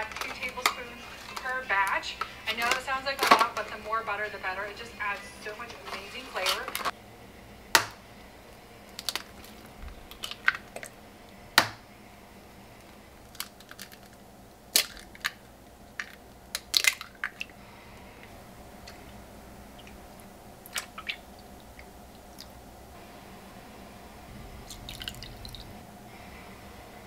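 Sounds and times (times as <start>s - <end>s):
milk pouring into bowl: 24.6s - 25.8s.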